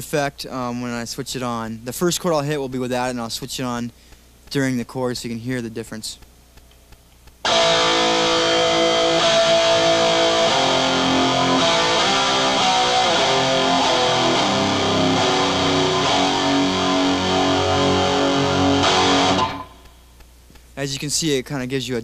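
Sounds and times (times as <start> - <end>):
distorted electric guitar chords: 7.4 - 20.0.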